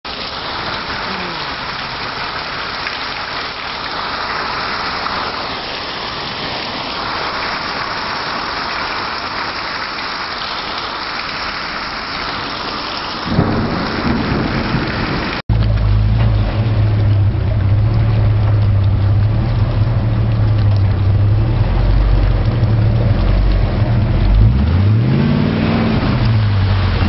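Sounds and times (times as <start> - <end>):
heavy rain falling: 0.1 - 27.0
truck engine running: 15.5 - 27.0.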